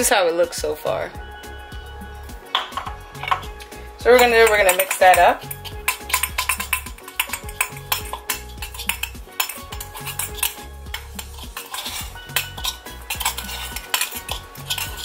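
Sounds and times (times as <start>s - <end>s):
metal spoon scraping cup: 2.5s - 15.0s.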